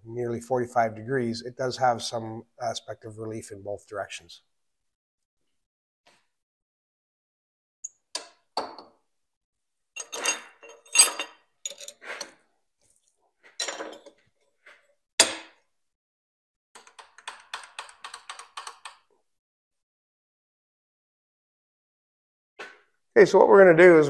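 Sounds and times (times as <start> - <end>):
metallic clinks and knocks: 10.0 - 12.0.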